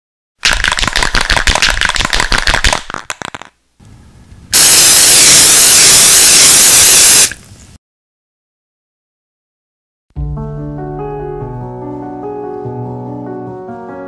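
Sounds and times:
spray can ball rattling: 0:00.4 - 0:03.6, 0:04.6 - 0:07.4
spray paint hissing: 0:04.6 - 0:07.4.

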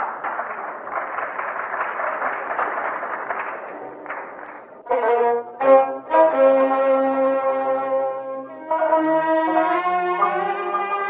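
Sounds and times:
audience applause: 0:00.0 - 0:04.8
orchestra playing sustained notes: 0:04.9 - 0:11.0.

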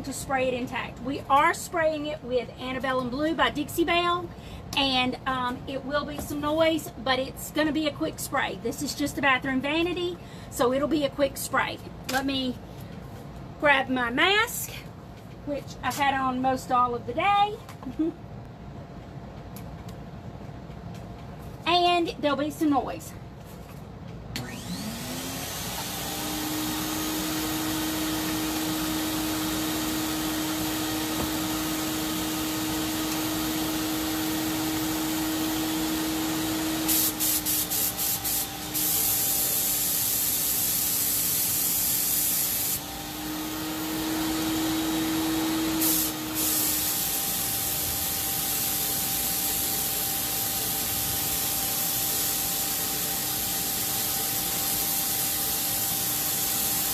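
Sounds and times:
paint sprayer turbine whine and hum: 0:24.3 - 0:56.9
spraying hiss: 0:36.9 - 0:42.8, 0:45.8 - 0:56.9.

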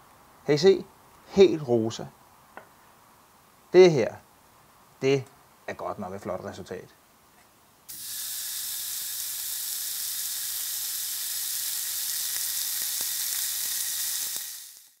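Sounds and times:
meat sizzling on a grill: 0:07.9 - 0:15.0.

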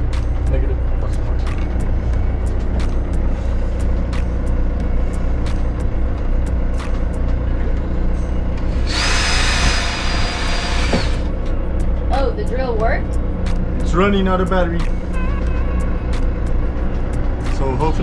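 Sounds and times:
cordless drill whining: 0:08.7 - 0:11.3.

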